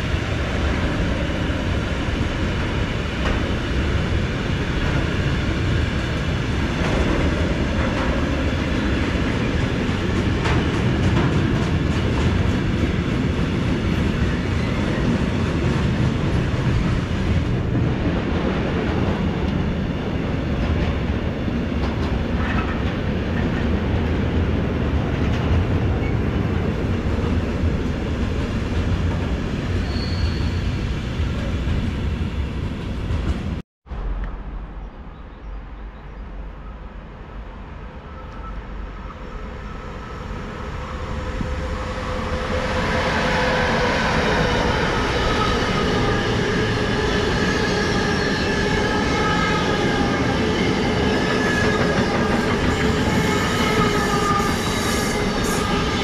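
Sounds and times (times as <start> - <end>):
train rumbling past: 0.0 - 56.0
high-pitched wheel and brake squeal: 29.8 - 30.8.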